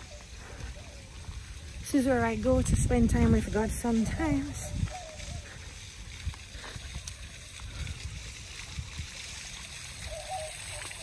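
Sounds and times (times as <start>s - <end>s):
fountain water splashing: 0.0s - 11.0s.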